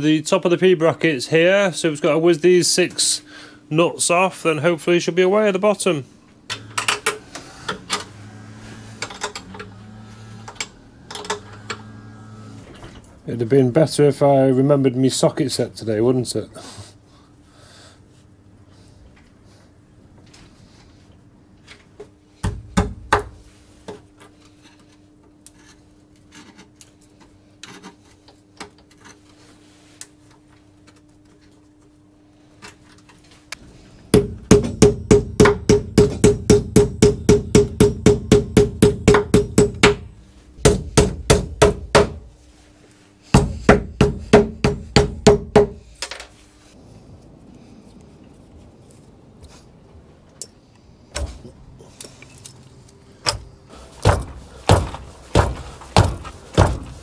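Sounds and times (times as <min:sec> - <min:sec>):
hammer striking metal: 0:34.1 - 0:42.2, 0:54.0 - 0:57.0.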